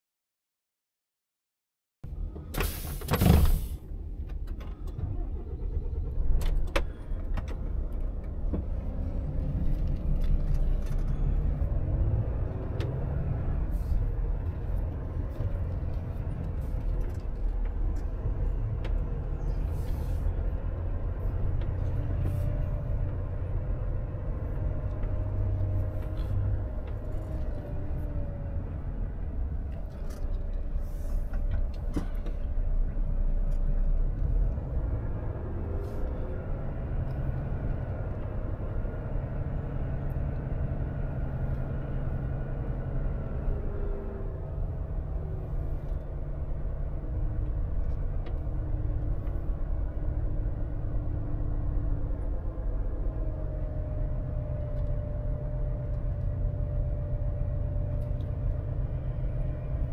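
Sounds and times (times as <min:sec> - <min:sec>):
truck diesel engine rumbling: 0:02.0 - 0:59.9.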